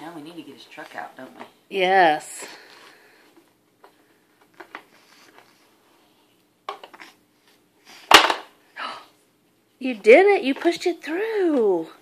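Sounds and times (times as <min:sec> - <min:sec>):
ball dropping into plastic toy: 0:08.1 - 0:08.5.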